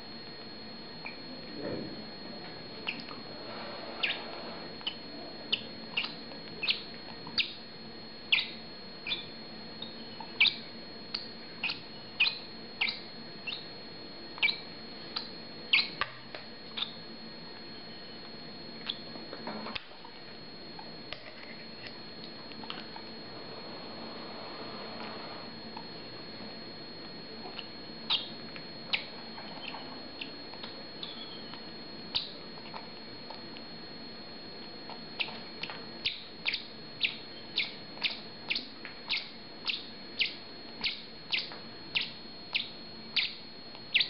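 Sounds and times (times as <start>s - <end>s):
bird chick peeping: 2.8s - 3.2s, 3.8s - 7.6s, 8.3s - 13.7s, 14.4s - 16.1s, 16.7s - 17.0s, 18.8s - 19.1s, 27.5s - 32.9s, 34.9s - 44.0s.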